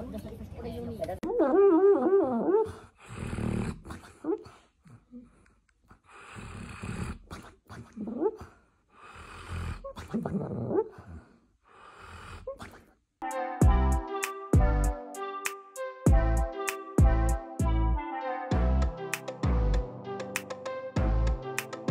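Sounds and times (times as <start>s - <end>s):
dog snoring and snuffling: 2.6s - 12.8s.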